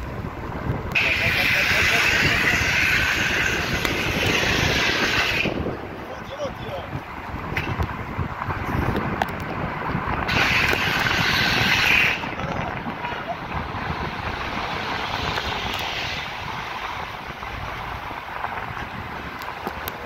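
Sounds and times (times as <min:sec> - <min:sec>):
car road rumble: 0:00.0 - 0:20.0
wind noise: 0:00.0 - 0:20.0
loud hiss: 0:10.3 - 0:12.2.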